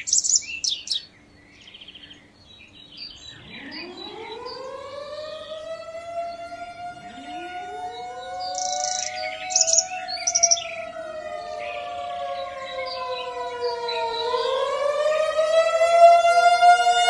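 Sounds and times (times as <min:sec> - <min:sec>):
birds chirping: 0:00.0 - 0:17.0
wavering warning siren: 0:03.1 - 0:17.0.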